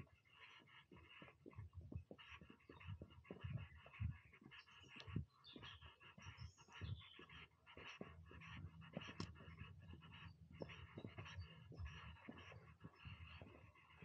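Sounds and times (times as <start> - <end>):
footsteps on dirt path: 0.7 - 14.0.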